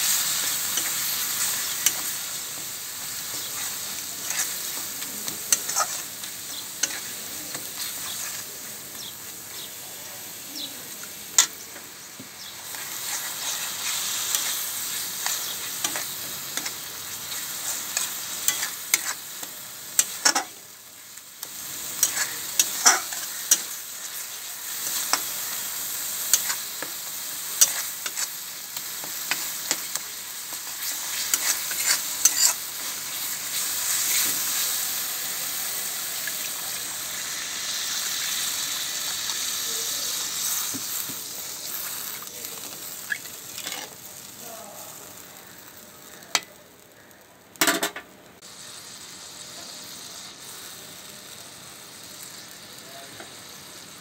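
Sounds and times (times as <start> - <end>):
masala sizzling in a pan: 0.0 - 54.0
metal spatula scraping a pan: 3.2 - 8.5, 12.6 - 19.4, 21.8 - 26.9, 29.0 - 34.7, 42.6 - 44.0.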